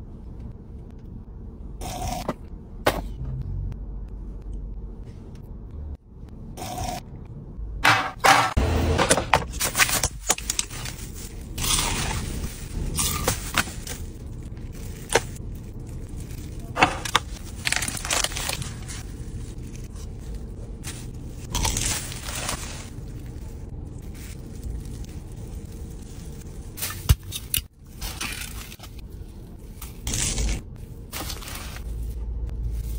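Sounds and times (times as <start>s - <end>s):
plastic crinkling: 9.6s - 29.0s
crunchy bites and chewing: 21.5s - 22.3s.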